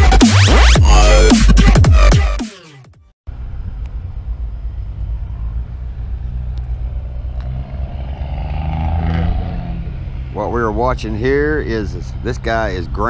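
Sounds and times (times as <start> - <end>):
electronic music: 0.0 - 3.0
engine rumble: 3.3 - 13.0.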